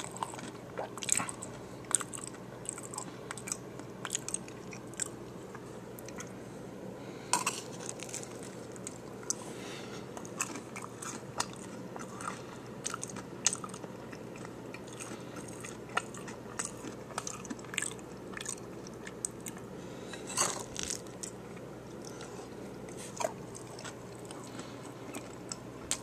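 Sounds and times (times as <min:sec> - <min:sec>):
wet chewing: 0:00.0 - 0:06.4, 0:10.0 - 0:26.0
taco shell crunching: 0:07.4 - 0:09.4, 0:20.4 - 0:22.2.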